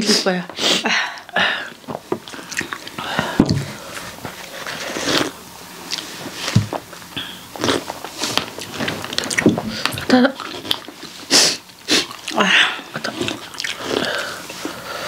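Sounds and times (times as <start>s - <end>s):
person breathing through mouth: 13.7s - 15.0s.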